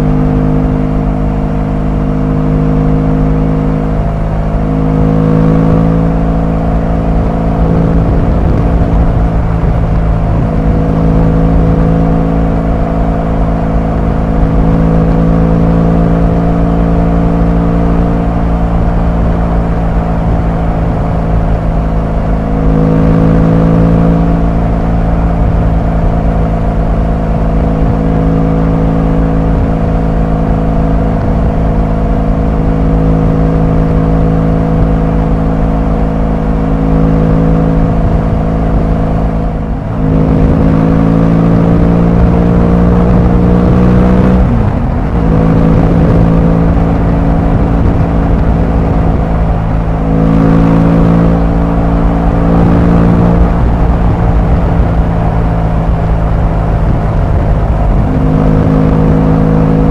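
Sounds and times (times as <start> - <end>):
low rumble: 0.0 - 59.9
motorcycle engine and exhaust: 0.0 - 59.9.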